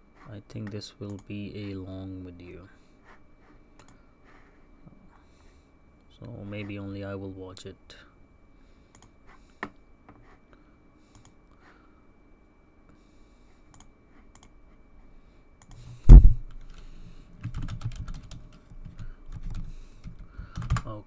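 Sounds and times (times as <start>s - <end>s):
loud thump: 16.1s - 16.4s
typing on computer keyboard: 17.4s - 20.9s.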